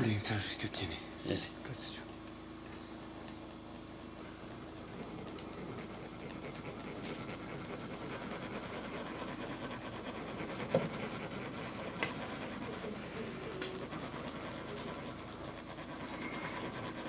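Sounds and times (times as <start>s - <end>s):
faint scratching and rubbing: 4.9s - 17.0s.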